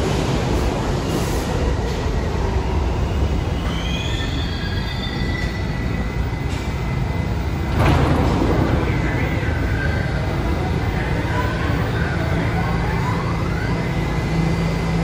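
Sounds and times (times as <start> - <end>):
subway train rumble: 0.0 - 15.0
train wheels squealing: 1.8 - 7.3.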